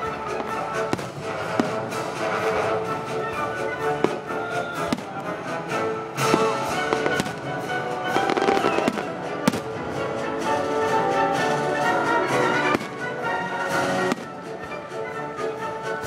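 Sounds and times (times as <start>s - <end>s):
orchestral music with strings: 0.0s - 16.0s
fireworks bangs: 6.2s - 9.8s, 13.9s - 14.4s.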